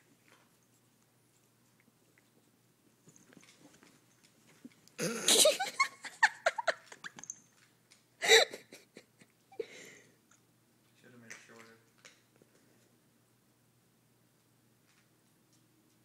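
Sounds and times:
person laughing: 5.0 - 7.1, 8.2 - 9.8.

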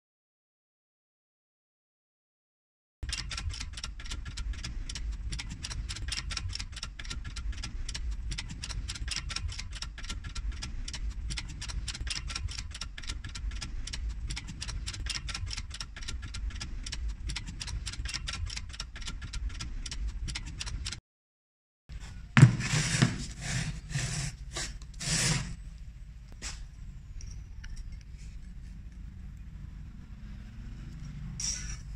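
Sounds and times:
rapid steady clicking: 3.0 - 21.0.

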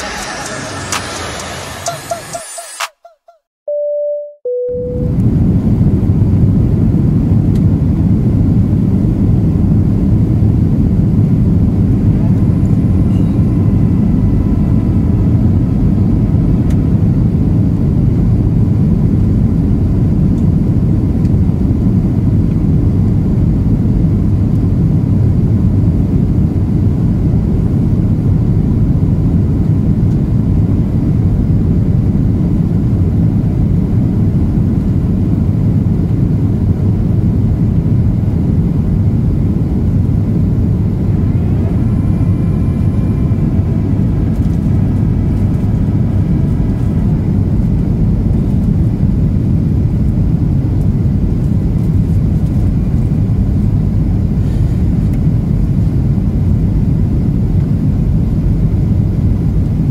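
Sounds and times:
airliner cabin engine roar: 0.0 - 3.0, 4.5 - 59.9.

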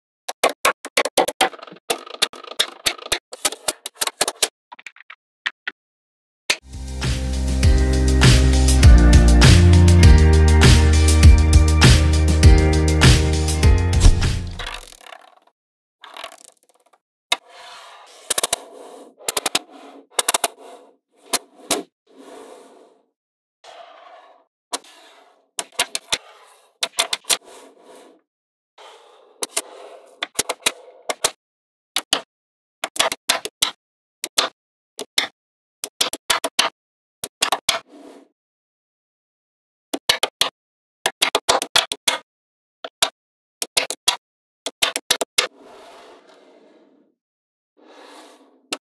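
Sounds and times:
balls scraping on tabletop: 14.0 - 15.4, 16.0 - 28.2, 28.8 - 31.4, 37.6 - 38.3, 45.4 - 47.2, 47.8 - 48.8.

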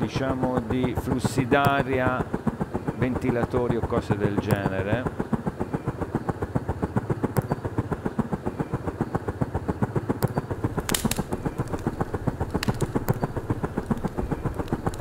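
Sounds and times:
electric fan whirring: 0.0 - 15.0
sharp clicks: 10.2 - 15.0.

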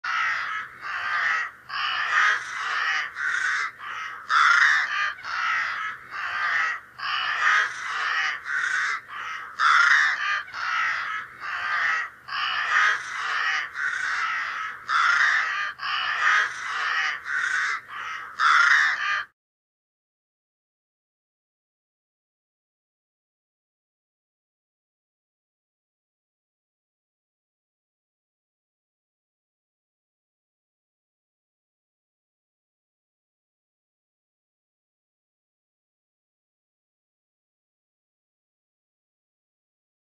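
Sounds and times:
harsh crow-like cawing: 0.0 - 19.4.

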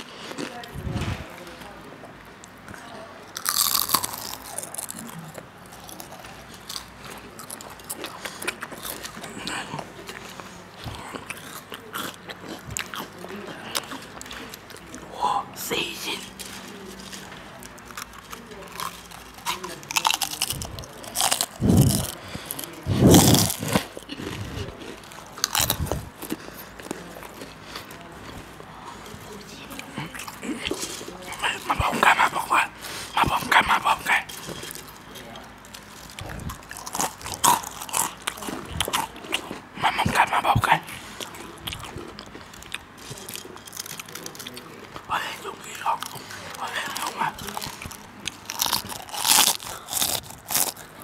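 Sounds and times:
person chewing: 0.0 - 1.2, 3.3 - 51.0
potato chips crunching: 3.3 - 10.4, 16.3 - 51.0.

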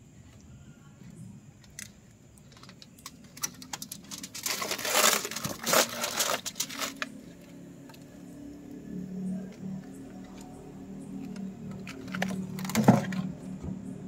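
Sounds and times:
aluminium foil crinkling: 1.7 - 7.2, 11.3 - 13.2.

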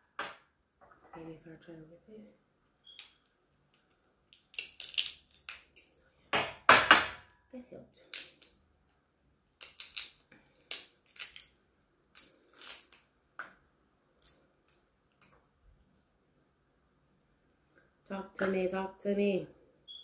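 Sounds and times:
crab shell cracking: 4.3 - 5.9, 9.5 - 13.1.

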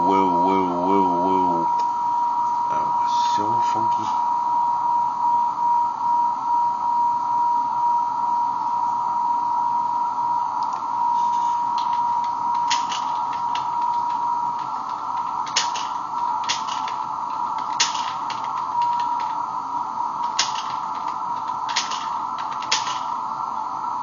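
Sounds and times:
radio hiss: 0.0 - 1.8, 2.7 - 4.3, 11.0 - 22.4
computer keyboard clicks: 11.8 - 19.4, 20.2 - 23.0.

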